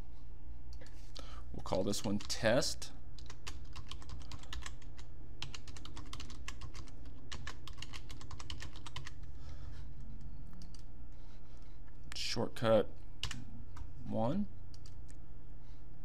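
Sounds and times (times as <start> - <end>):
steady low hum: 0.0 - 16.0
computer keyboard typing: 3.2 - 9.3, 10.5 - 10.9, 13.2 - 13.9, 14.7 - 15.2.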